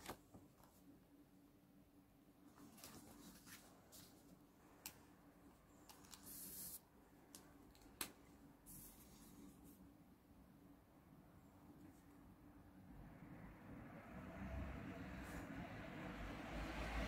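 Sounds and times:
papery rustles: 0:02.5 - 0:04.4.

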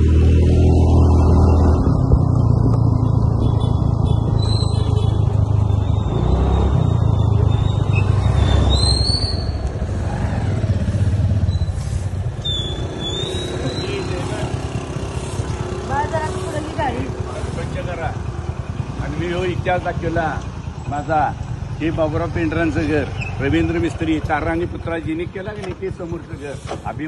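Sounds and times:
wind rumbling on microphone: 0:00.9 - 0:04.8
motor scooter running: 0:12.8 - 0:27.0.

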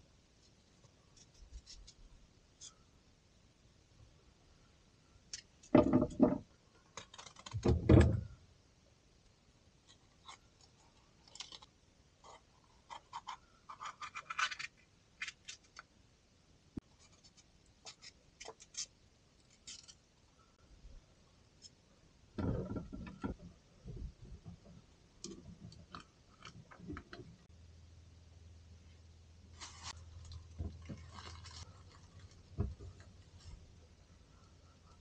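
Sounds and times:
small knocks: 0:05.7 - 0:06.5, 0:22.4 - 0:27.3
knife cutting and scraping pepper: 0:07.0 - 0:07.6, 0:10.0 - 0:15.8, 0:17.0 - 0:20.0
clatter and rustle of handling: 0:29.6 - 0:33.6.

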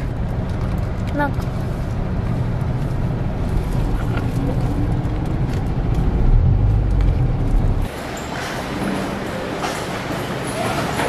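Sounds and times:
car cabin low rumble: 0:00.0 - 0:07.9.

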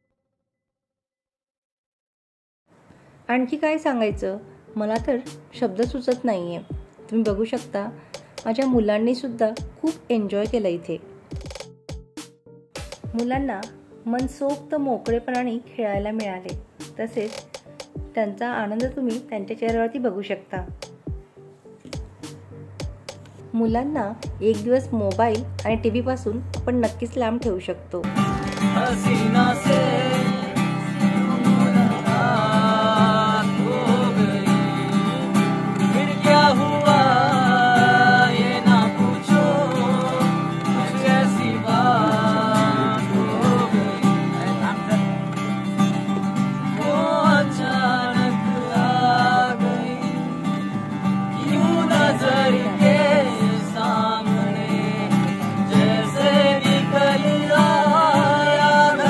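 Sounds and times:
acoustic guitar strumming: 0:28.0 - 0:59.0
person singing: 0:28.4 - 0:45.2, 0:46.1 - 0:50.5, 0:51.3 - 0:59.0.

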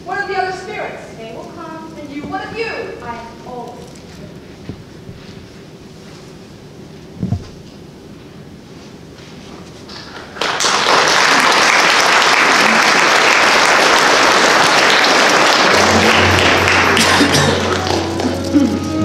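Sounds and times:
audience applauding: 0:09.9 - 0:19.0
music: 0:15.5 - 0:19.0.

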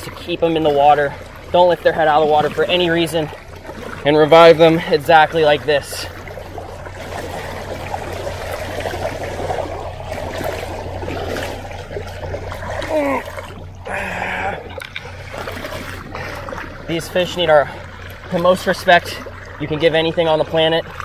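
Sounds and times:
boat motor idling: 0:00.0 - 0:21.0
water rushing and splashing: 0:00.0 - 0:21.0.

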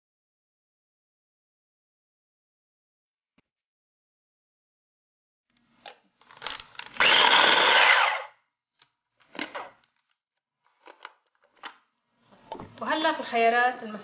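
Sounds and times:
electric food chopper grinding: 0:06.9 - 0:08.4.

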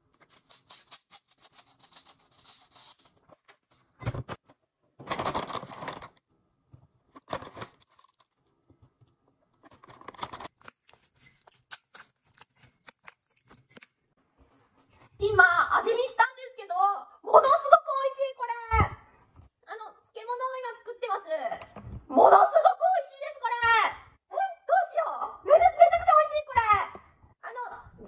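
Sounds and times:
plastic bag crinkling: 0:05.0 - 0:06.2, 0:07.1 - 0:08.5, 0:09.7 - 0:14.0.

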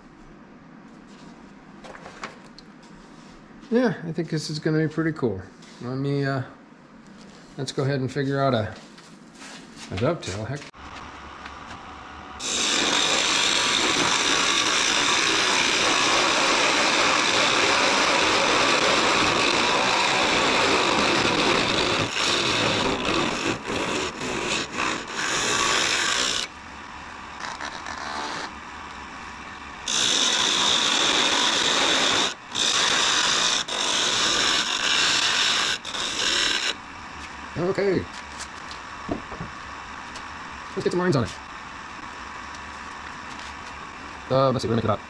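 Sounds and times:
wood lathe cutting hiss: 0:12.4 - 0:26.5, 0:29.8 - 0:36.8.

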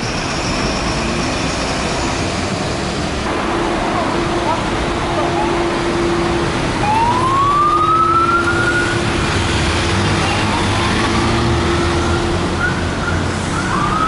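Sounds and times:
street traffic: 0:00.0 - 0:14.0
emergency siren wailing: 0:03.4 - 0:09.5, 0:10.3 - 0:14.0.

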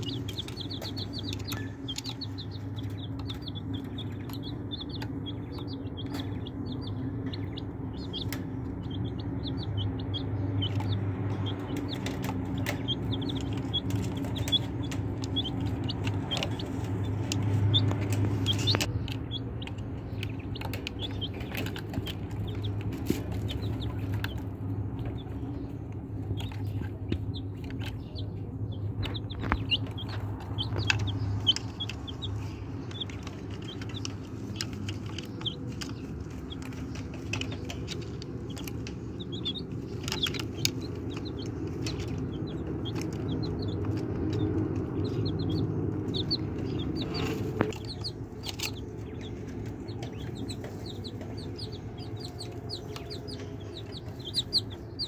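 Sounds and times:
chicks peeping: 0:00.0 - 0:55.0
sharp pecking taps: 0:00.0 - 0:55.0
steady low hum: 0:00.0 - 0:55.0.

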